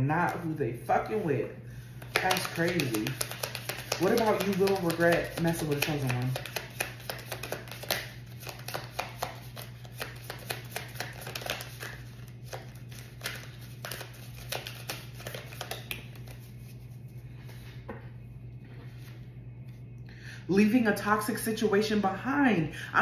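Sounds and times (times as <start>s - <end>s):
low steady hum: 0.0s - 23.0s
cards being shuffled by hand: 2.0s - 17.8s.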